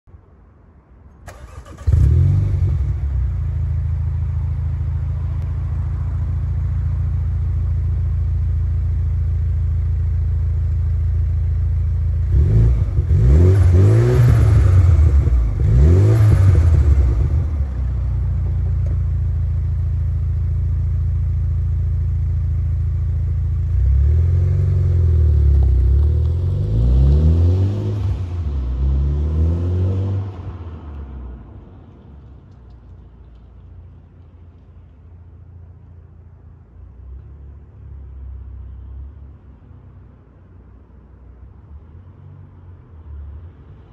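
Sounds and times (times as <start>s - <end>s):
car engine starting and idling: 1.1s - 27.2s
engine revving: 1.3s - 3.0s, 12.2s - 17.8s
car accelerating away: 1.3s - 3.7s, 12.2s - 18.0s, 23.7s - 31.1s.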